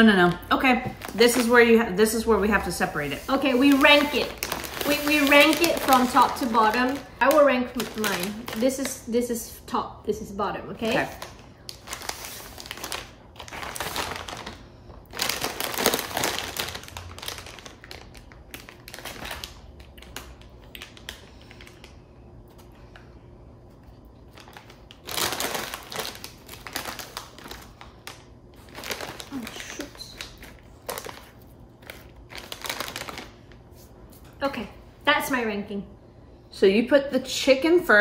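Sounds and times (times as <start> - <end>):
plastic bags crinkling: 0.0 - 9.2, 10.8 - 22.0, 24.2 - 33.8.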